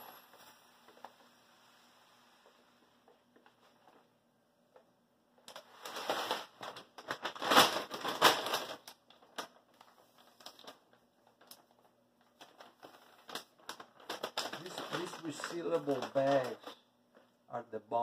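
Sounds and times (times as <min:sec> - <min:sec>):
plastic bag crinkling: 0:05.5 - 0:17.3.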